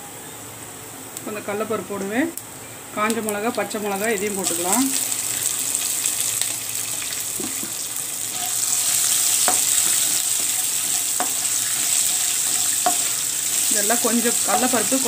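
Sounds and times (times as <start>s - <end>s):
oil sizzling in a pan: 3.0s - 15.0s.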